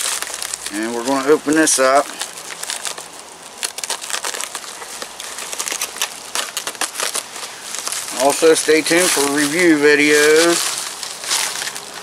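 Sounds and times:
plastic mailer crinkling: 0.0s - 12.0s.

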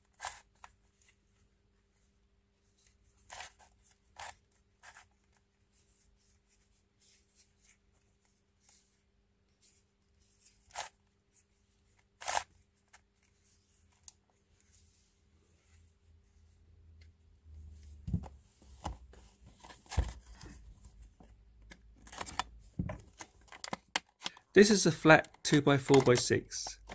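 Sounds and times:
puzzle cube clicking: 23.4s - 26.9s.

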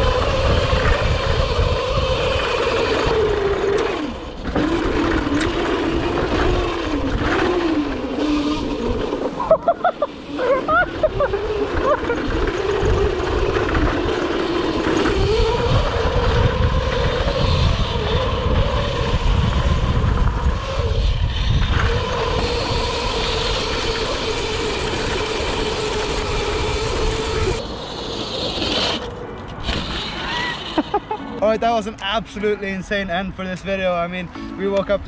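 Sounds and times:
wind buffeting: 0.0s - 9.8s, 10.4s - 34.3s
electric motor whining: 0.0s - 31.4s.

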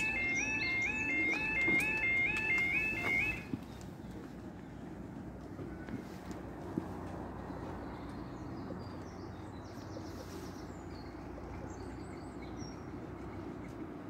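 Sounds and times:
bird trill: 0.0s - 3.4s
small birds chirping: 7.4s - 14.0s.

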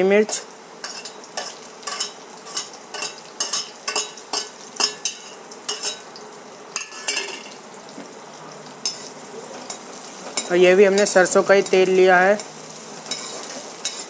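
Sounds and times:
onions sizzling in hot oil: 0.0s - 14.0s
ladle scraping a metal pan: 0.8s - 6.0s.

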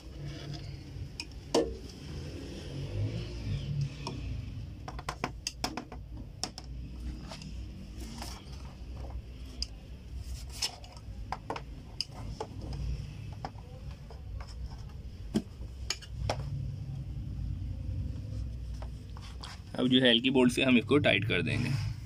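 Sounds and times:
scale parts clicking and knocking: 4.8s - 6.9s.

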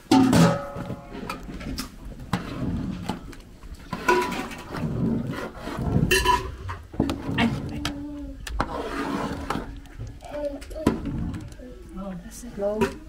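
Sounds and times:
metal ladle scraping a pot: 3.7s - 7.7s, 8.6s - 10.1s.

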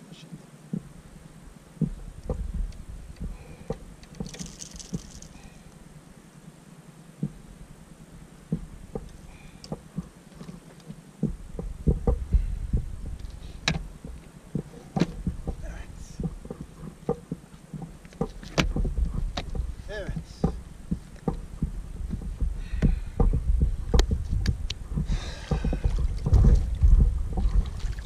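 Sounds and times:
low rumble: 0.8s - 4.0s, 11.2s - 17.1s, 17.8s - 28.0s
fishing tackle clicks and knocks: 1.8s - 5.8s.

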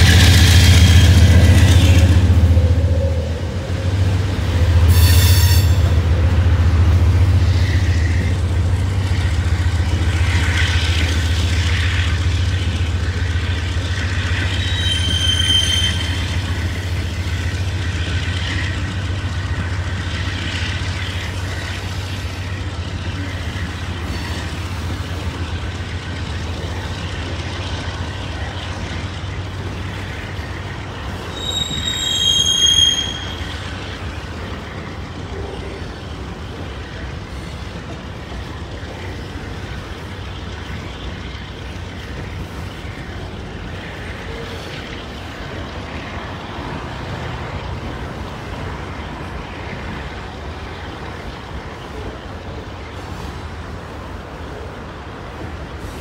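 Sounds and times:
train wheel squeal: 0.0s - 6.4s, 7.2s - 35.8s
freight train rumbling past: 0.0s - 56.0s.

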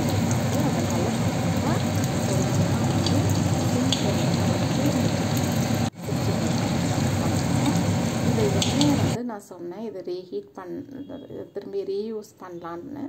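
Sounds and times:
chicken sizzling in hot oil: 0.0s - 9.2s.

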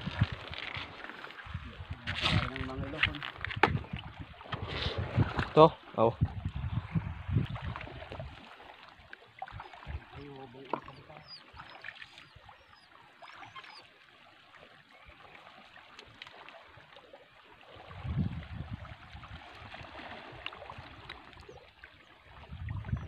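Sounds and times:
wind buffeting microphone: 0.0s - 8.4s, 17.8s - 21.1s, 22.3s - 23.0s
water lapping around rocks: 0.0s - 23.0s
wading splashes: 6.8s - 23.0s.

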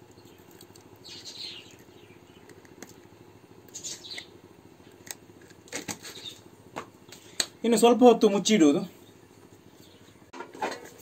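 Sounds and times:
low steady hum: 0.0s - 11.0s
faint bird chirps: 0.1s - 2.6s, 3.7s - 4.4s.

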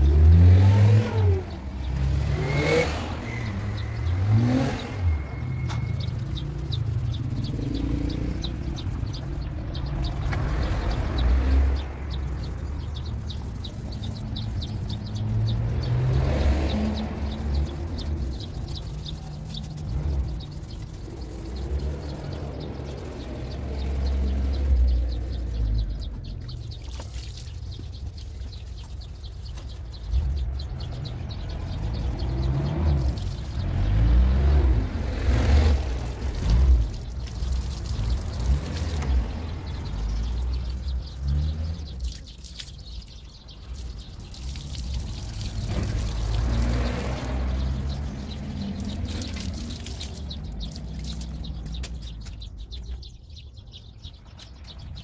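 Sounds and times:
garden hose water splashing: 0.0s - 53.0s
birds chirping: 0.0s - 55.0s.

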